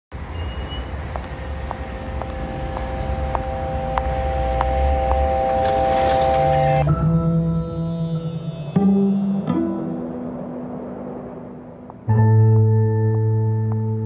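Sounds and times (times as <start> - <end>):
low traffic rumble: 0.1 - 14.0
soft ticking: 1.1 - 5.6
held synth chord: 2.0 - 12.5.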